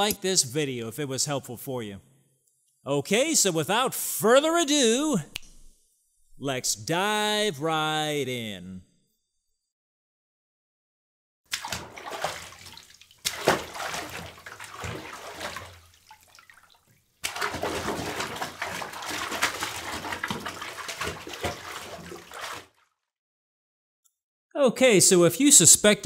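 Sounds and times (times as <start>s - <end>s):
water running and splashing: 11.5s - 22.8s.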